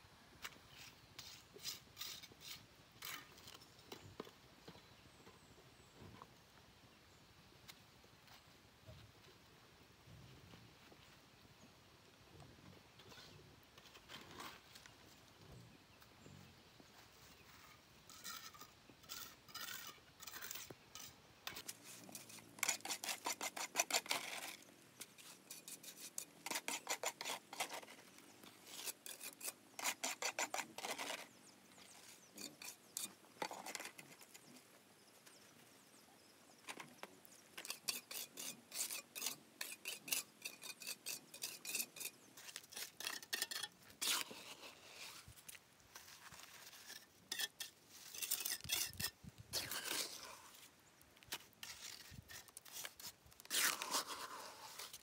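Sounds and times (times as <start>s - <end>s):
scraping strokes on hard surface: 0.4s - 3.6s, 17.2s - 34.6s, 36.7s - 55.0s.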